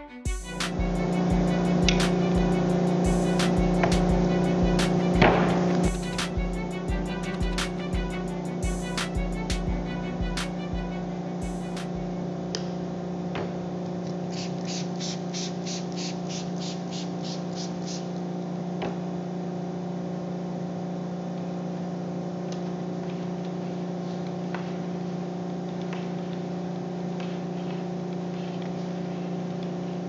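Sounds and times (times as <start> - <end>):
machinery humming: 0.0 - 14.0
soft hissing pulses: 14.3 - 18.1.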